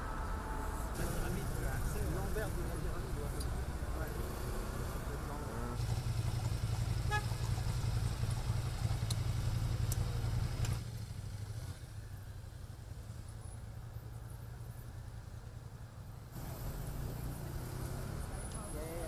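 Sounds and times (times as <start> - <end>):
city traffic noise: 0.0 - 19.0
motorcycle engine idling: 5.8 - 13.9.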